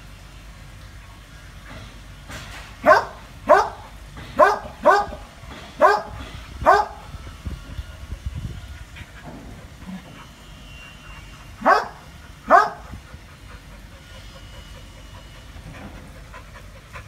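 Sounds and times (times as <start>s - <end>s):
dog barking: 2.8s - 5.2s, 5.8s - 7.0s, 11.6s - 12.8s.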